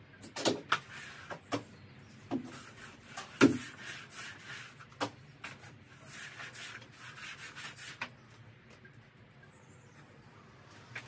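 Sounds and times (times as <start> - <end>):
mop scrubbing decking: 0.7 - 8.3.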